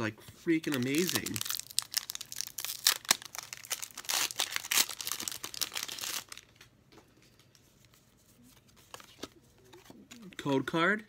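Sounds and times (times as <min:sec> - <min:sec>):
foil wrapper crinkling and tearing: 0:00.6 - 0:06.6.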